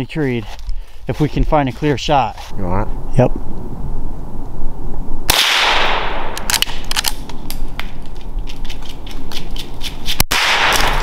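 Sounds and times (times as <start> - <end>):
gunshot echoing: 5.3 - 6.8, 10.3 - 11.0
short sharp crackles and clicks: 5.3 - 8.2.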